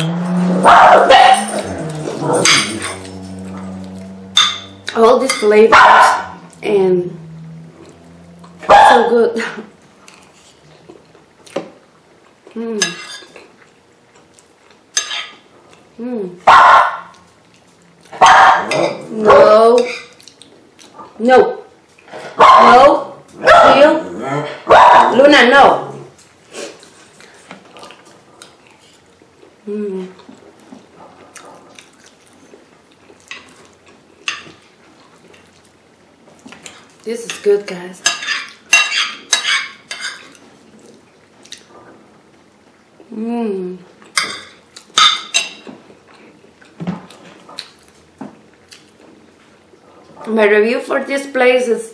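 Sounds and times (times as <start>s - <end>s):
fork scraping a ceramic plate: 1.5s - 5.6s
chewing: 9.8s - 12.6s, 13.2s - 15.9s, 17.1s - 18.2s, 19.8s - 21.2s, 26.1s - 35.8s, 38.5s - 42.0s, 43.9s - 50.2s.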